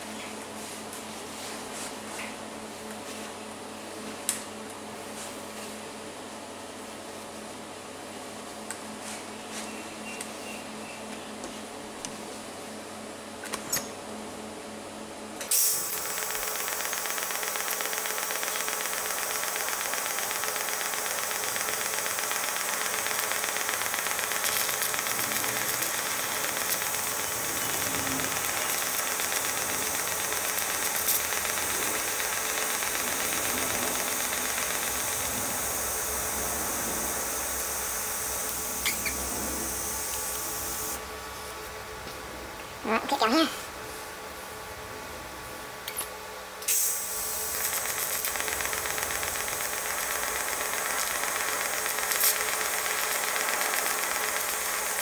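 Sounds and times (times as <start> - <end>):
welding arc hissing buzz: 15.5 - 41.1, 46.6 - 55.0.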